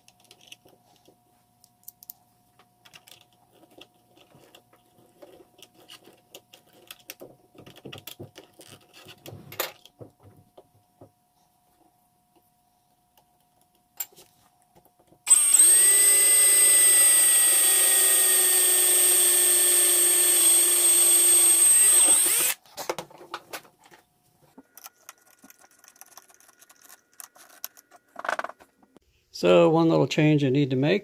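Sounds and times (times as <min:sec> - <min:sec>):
handling clicks and rattles: 0:02.8 - 0:10.2, 0:24.6 - 0:28.8
electric drill drilling metal: 0:15.3 - 0:22.6.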